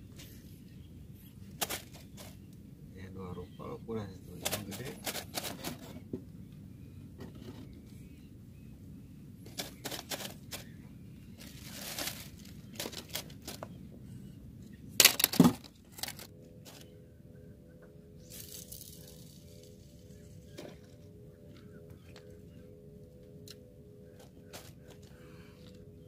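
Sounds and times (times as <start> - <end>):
fishing tackle rustling and clicking: 4.4 - 6.0, 9.5 - 10.7, 11.4 - 13.8, 15.0 - 16.9, 18.2 - 22.6, 23.3 - 25.8.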